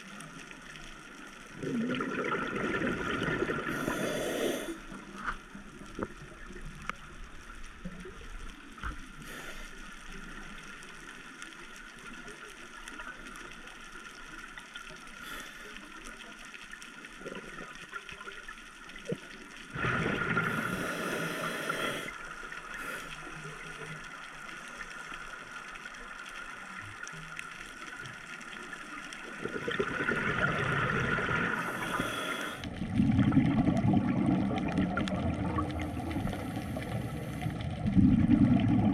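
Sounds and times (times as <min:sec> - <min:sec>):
exhaled bubbles rushing underwater: 0:00.0 - 0:07.2, 0:17.1 - 0:22.8, 0:29.0 - 0:38.9.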